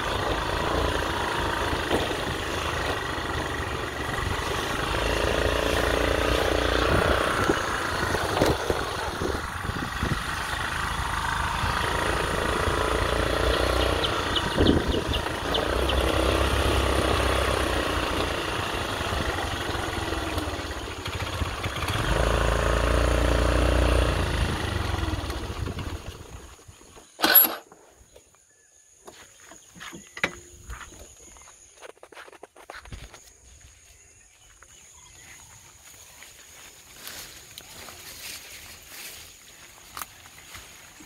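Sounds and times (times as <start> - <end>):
motorcycle engine running: 0.0 - 27.6
footsteps through brush: 1.9 - 9.9, 29.0 - 41.0.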